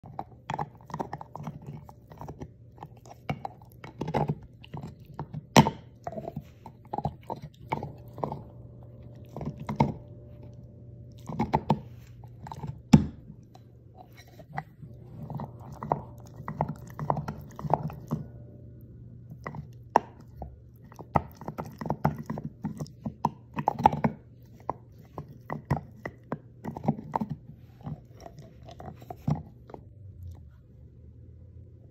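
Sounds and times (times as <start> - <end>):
dog gnawing a hard chew: 0.0 - 18.6, 19.2 - 30.4.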